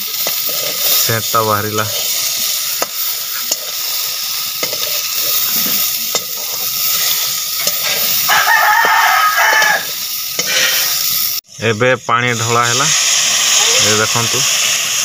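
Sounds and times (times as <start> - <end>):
spatula scraping pan: 0.0 - 11.1
fish sizzling in pan: 0.0 - 15.0
rooster crowing: 8.2 - 10.0.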